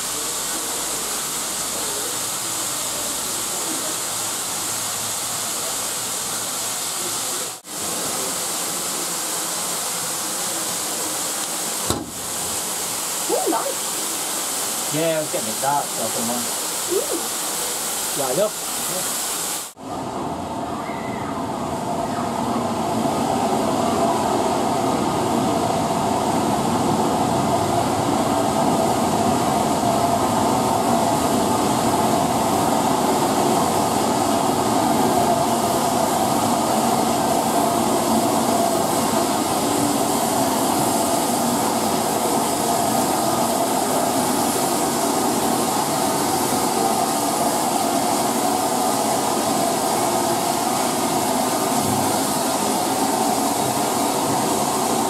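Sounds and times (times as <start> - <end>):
leaking steam hiss: 0.0 - 19.8, 22.8 - 55.0
steam train running: 0.0 - 20.6, 21.4 - 55.0.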